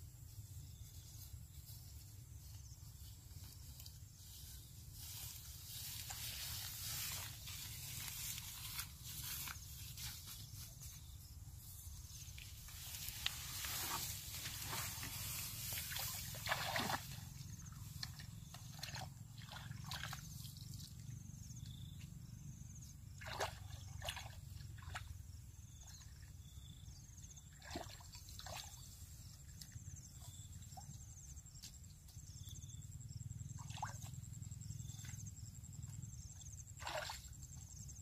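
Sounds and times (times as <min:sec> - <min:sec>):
water sloshing and trickling: 0:12.2 - 0:21.1, 0:23.1 - 0:25.2, 0:27.5 - 0:29.8, 0:33.6 - 0:34.2, 0:36.7 - 0:37.6
short water splashes: 0:13.0 - 0:20.4, 0:23.2 - 0:25.1, 0:27.6 - 0:28.8, 0:33.6 - 0:34.1, 0:36.7 - 0:37.3.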